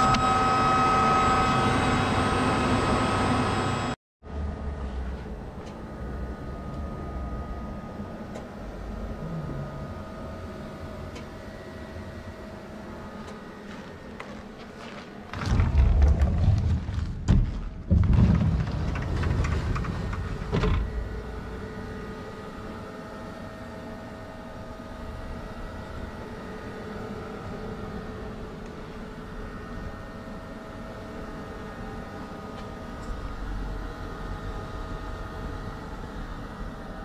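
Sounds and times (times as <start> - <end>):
machine rumbling and knocking: 13.0 - 22.6.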